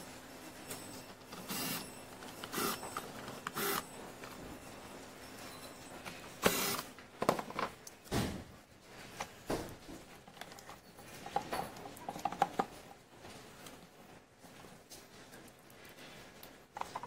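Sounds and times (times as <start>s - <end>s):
plastic handling knocks and rustling: 7.2s - 12.8s.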